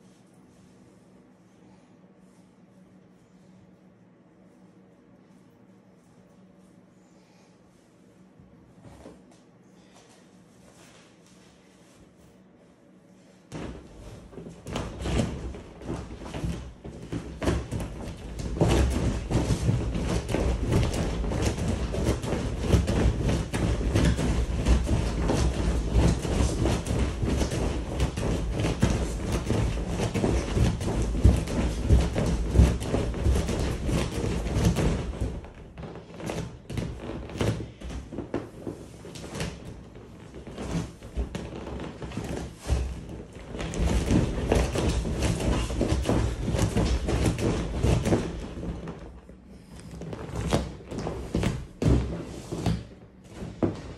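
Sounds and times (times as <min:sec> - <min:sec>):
thumps on air mattress: 0:13.5 - 0:53.9.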